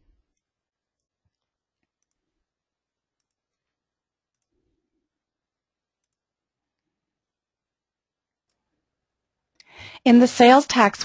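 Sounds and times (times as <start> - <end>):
computer mouse clicks: 0.3 - 2.4, 3.1 - 4.6, 6.0 - 6.9.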